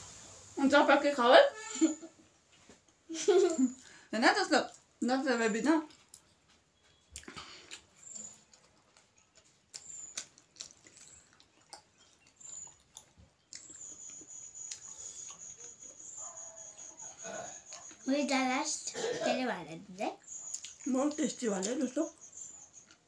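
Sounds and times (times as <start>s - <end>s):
wet chewing and lip smacks: 5.8s - 18.1s, 20.2s - 23.0s.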